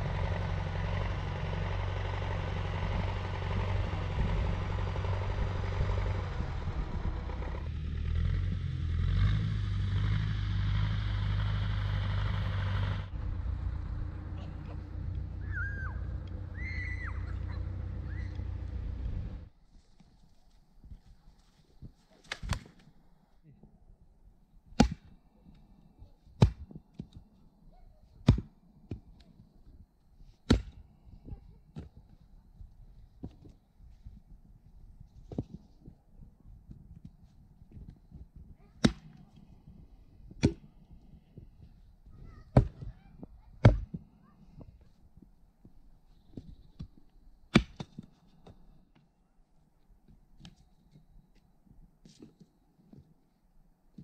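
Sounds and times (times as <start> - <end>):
axe chopping wood: 24.8 - 25.1, 26.4 - 27.1, 28.2 - 29.0, 30.4 - 30.8, 38.8 - 39.2, 40.4 - 40.7, 42.6 - 42.9, 43.6 - 44.0, 47.5 - 48.1.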